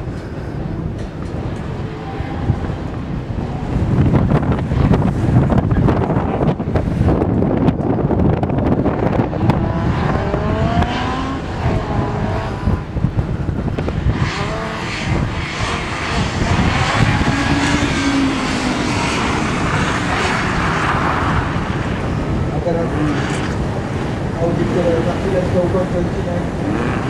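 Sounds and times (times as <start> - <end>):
car engine revving hard: 8.9 - 13.2, 14.0 - 25.2.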